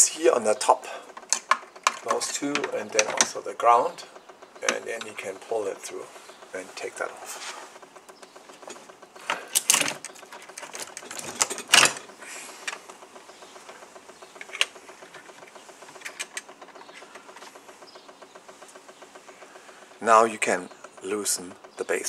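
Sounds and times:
fast even ticking: 0.0s - 11.1s, 12.1s - 22.0s
plastic housing knocking and clattering: 1.1s - 3.4s.

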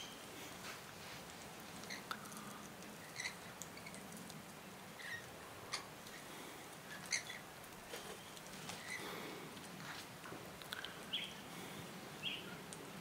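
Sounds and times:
faint bird chirps: 0.0s - 0.3s, 6.9s - 9.1s, 10.8s - 11.5s, 12.2s - 12.7s
low outdoor hiss: 0.0s - 13.0s.

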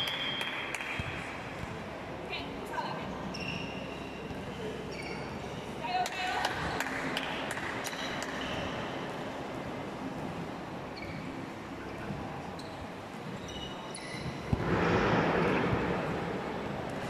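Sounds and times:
shoe squeaks: 3.2s - 5.6s, 10.9s - 11.6s, 12.5s - 14.5s.

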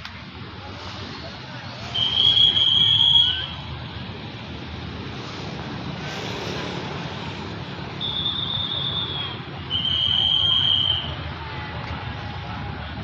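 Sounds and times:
diesel locomotive rumbling: 0.0s - 13.0s
shrill train whistle: 1.9s - 3.6s, 8.0s - 11.2s.

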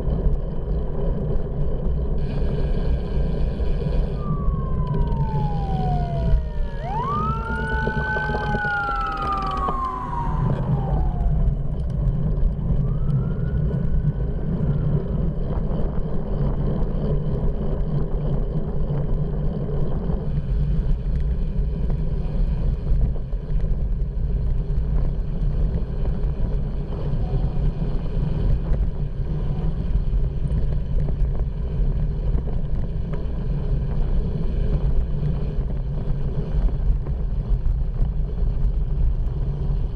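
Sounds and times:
road rumble: 0.0s - 39.9s
wind rush: 1.2s - 39.9s
emergency siren wailing: 3.8s - 15.6s.

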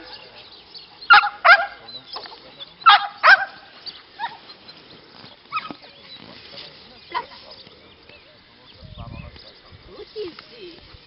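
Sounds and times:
dog barking: 1.1s - 1.8s, 2.8s - 3.6s.

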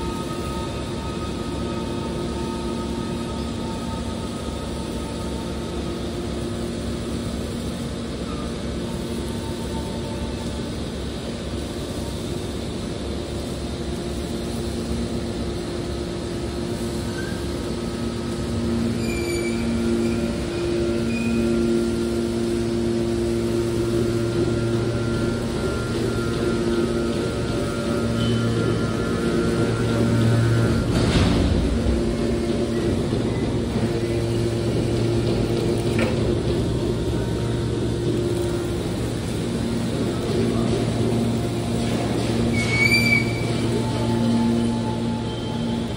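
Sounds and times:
hydraulic baler humming: 0.0s - 45.9s
faint high whine: 16.3s - 36.1s.

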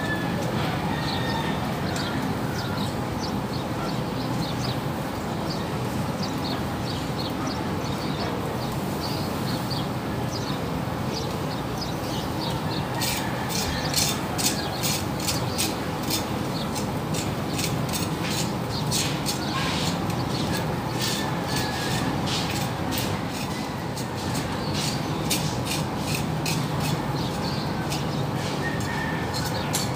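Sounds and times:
steady background noise: 0.0s - 29.9s
metal tongs clicking on grill grate: 13.0s - 29.9s.

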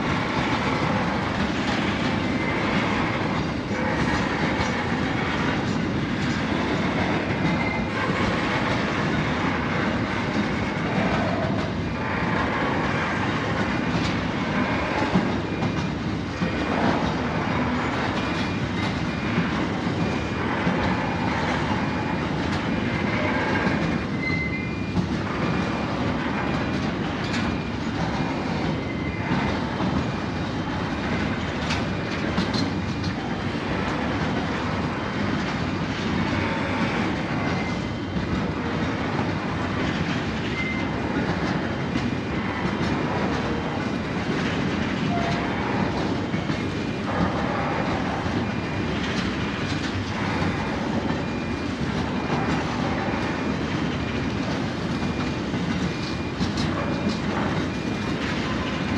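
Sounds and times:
train wheels clattering on rails: 0.0s - 58.9s
high wheel squeals: 23.0s - 25.0s, 40.5s - 41.0s.

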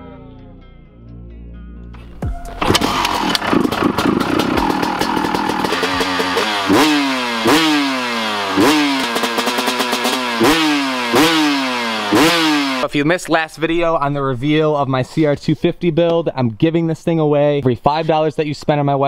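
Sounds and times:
dirt bike engine revving: 2.5s - 13.0s.

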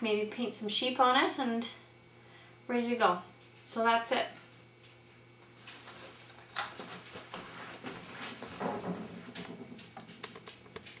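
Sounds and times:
knocks and rustles: 5.6s - 11.0s
wooden chair creaking: 5.8s - 10.9s
footsteps on wooden floor: 6.7s - 11.0s.

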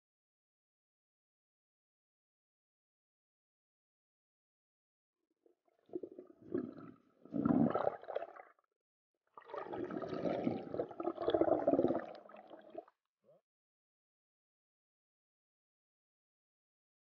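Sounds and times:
water gurgling and bubbling: 5.9s - 8.4s, 9.4s - 12.9s.

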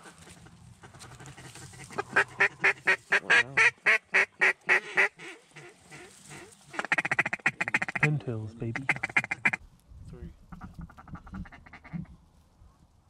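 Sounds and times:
duck call quacks: 1.0s - 8.1s, 8.8s - 9.6s, 10.5s - 12.1s.

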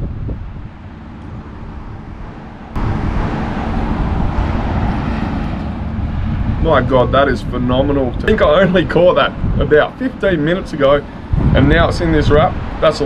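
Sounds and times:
outdoor background rumble: 0.0s - 13.0s.

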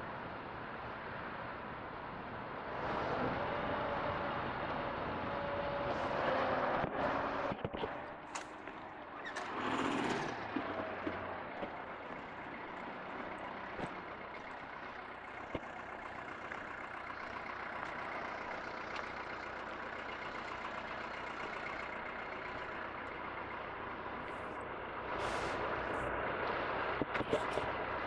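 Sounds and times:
low rumble of traffic: 0.0s - 28.0s
freight wagons rolling past: 5.9s - 28.0s
sharp clicks from wheels: 6.0s - 28.0s.

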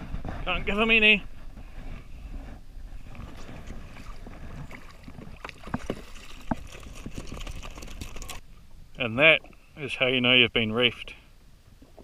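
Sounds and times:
wind: 0.0s - 12.0s
water washing against hull: 0.1s - 8.4s
fish thrashing and splashing: 3.0s - 8.4s.

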